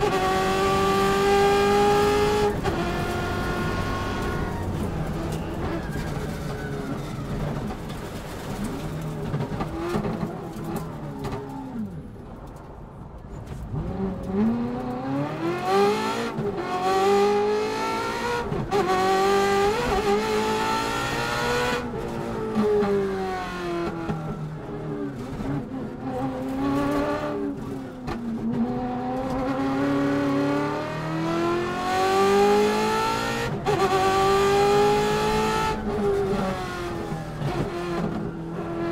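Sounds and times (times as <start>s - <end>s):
rally car engine revving: 0.0s - 5.8s, 13.7s - 38.9s.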